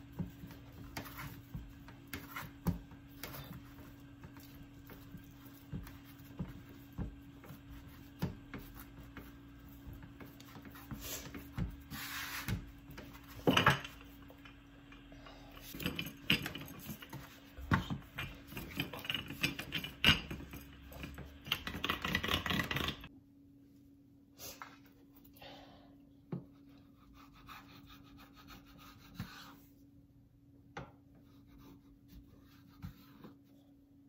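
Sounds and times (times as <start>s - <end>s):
hands kneading dough: 0.0s - 23.1s
rolling pin rolling dough: 0.0s - 23.1s.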